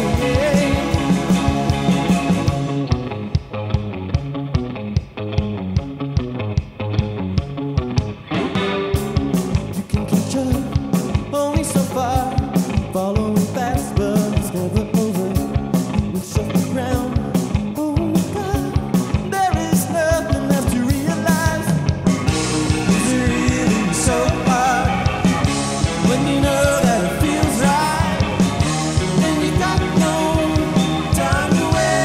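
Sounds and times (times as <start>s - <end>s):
drum kit with cymbals: 0.0s - 32.0s
electric bass: 0.0s - 32.0s
electric guitar: 0.0s - 32.0s
keyboard: 0.0s - 32.0s.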